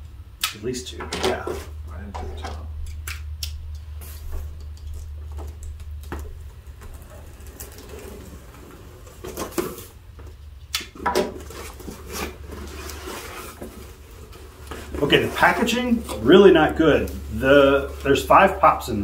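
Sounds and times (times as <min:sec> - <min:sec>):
cardboard flaps scraping and rustling: 0:05.4 - 0:10.1, 0:11.1 - 0:19.0.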